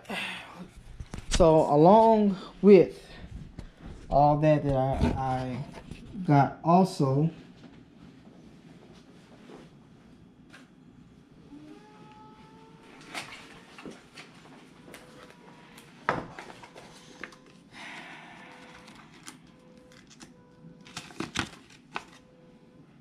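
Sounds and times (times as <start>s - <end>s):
paper and packaging rustling: 16.2s - 17.7s, 18.3s - 22.3s
paper crinkling: 18.4s - 22.3s.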